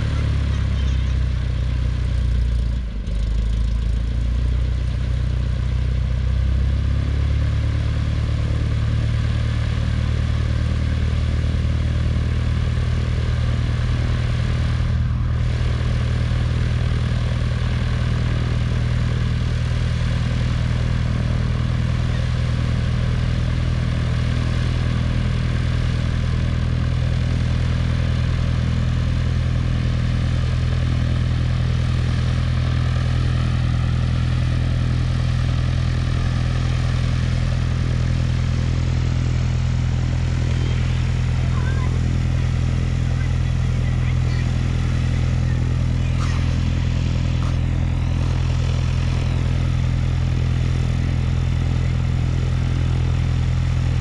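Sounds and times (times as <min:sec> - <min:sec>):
propeller plane engine droning: 0:00.0 - 0:54.0.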